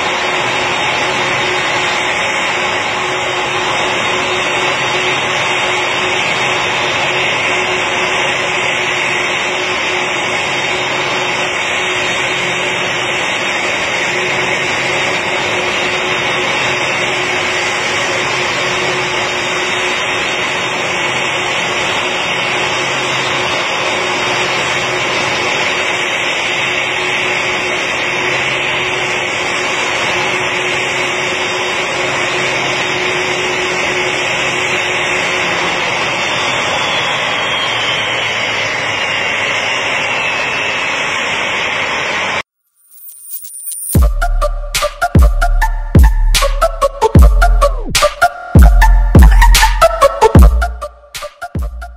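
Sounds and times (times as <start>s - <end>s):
jet engines idling: 0.0s - 42.4s, 44.0s - 51.9s.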